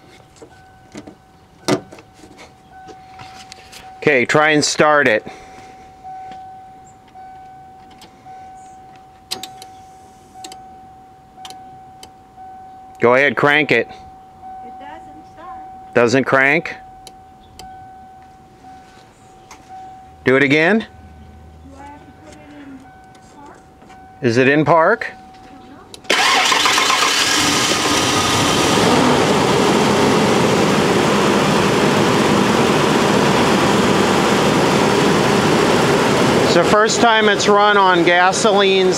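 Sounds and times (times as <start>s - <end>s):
car warning chime dinging: 0.4s - 27.2s
car engine starting and running: 23.9s - 38.9s.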